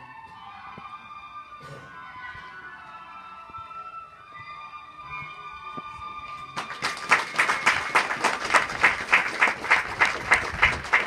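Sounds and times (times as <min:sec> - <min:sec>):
music of held tones: 0:00.0 - 0:06.7
close hands clapping: 0:06.3 - 0:11.0
group applauding: 0:06.6 - 0:11.0.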